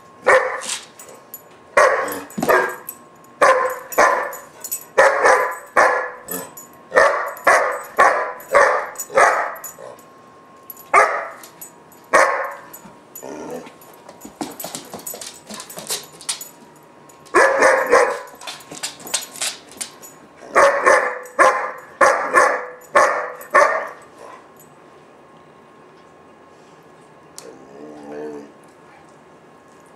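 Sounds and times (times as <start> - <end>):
puppy barking: 0.2 - 0.7, 1.8 - 9.6, 11.0 - 11.4, 12.2 - 12.7, 17.4 - 18.4, 20.5 - 24.4.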